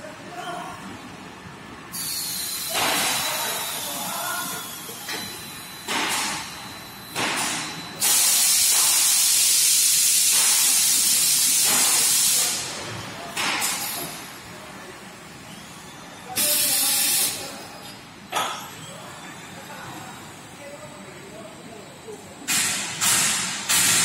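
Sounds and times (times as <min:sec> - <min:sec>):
compressed air hissing: 0:01.9 - 0:04.9, 0:08.0 - 0:12.6, 0:16.4 - 0:17.5
machine running noise: 0:22.5 - 0:24.0.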